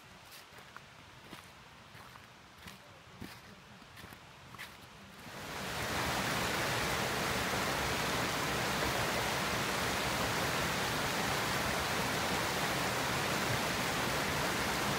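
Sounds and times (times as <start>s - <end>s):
stream rushing over rocks: 0.0s - 14.9s.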